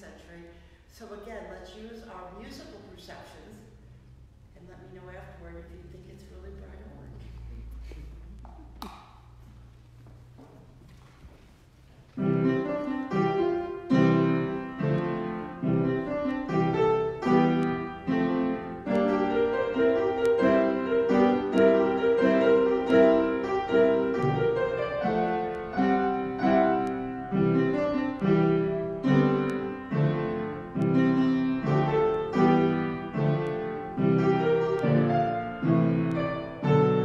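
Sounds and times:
piano playing chords: 12.2s - 37.0s.

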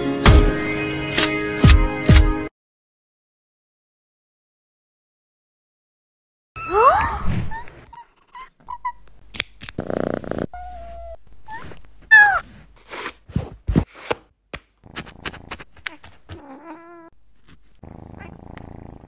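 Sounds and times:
kitten purring: 9.7s - 11.2s, 14.9s - 19.0s.

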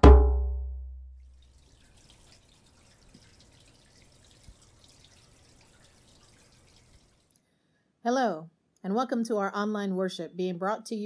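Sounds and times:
deep hit ringing: 0.0s - 1.3s.

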